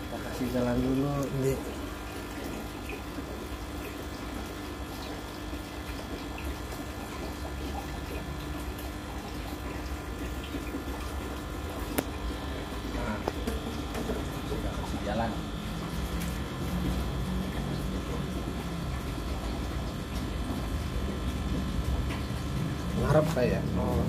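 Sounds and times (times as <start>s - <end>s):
aquarium water bubbling: 0.0s - 24.0s.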